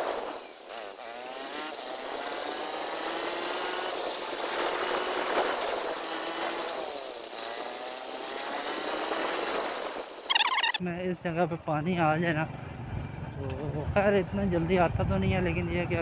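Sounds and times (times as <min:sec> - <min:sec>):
motorcycle engine running: 0:00.0 - 0:10.8.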